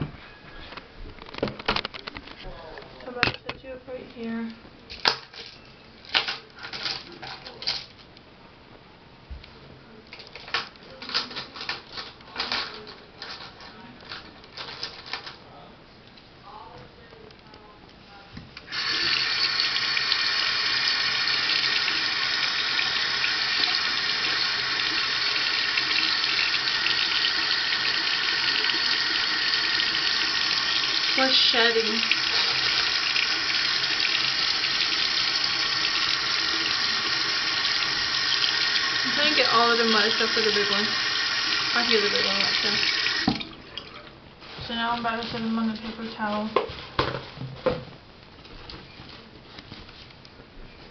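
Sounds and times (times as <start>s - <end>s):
faucet water running: 18.7s - 44.1s
water splashing over brushes: 21.3s - 44.1s.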